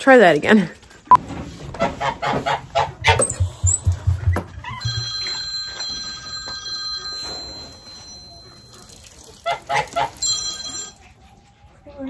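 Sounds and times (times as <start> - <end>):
electronic ringing tones: 3.2 - 4.2.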